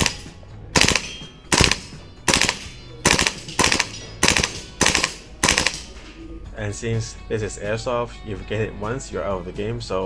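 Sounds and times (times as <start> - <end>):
airsoft gun firing bursts: 0.0 - 5.8.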